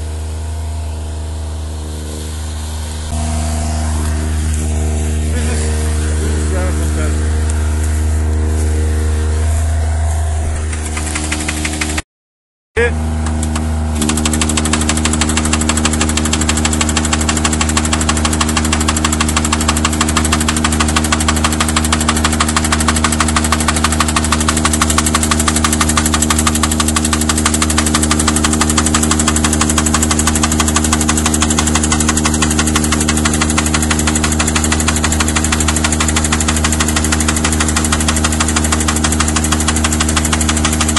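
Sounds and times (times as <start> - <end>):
forestry machine hum: 0.0 - 12.0, 12.8 - 40.9
high whine: 0.0 - 12.0, 12.8 - 40.9
fast even clatter: 10.6 - 12.0, 13.2 - 40.9.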